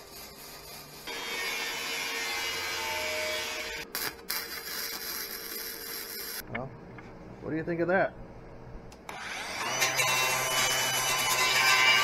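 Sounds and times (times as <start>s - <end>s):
arc welding crackling: 3.8s - 6.4s.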